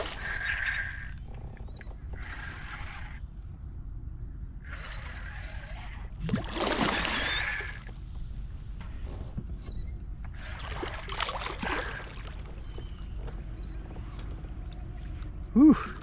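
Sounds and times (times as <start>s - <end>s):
fish splashing in water: 6.3s - 7.9s.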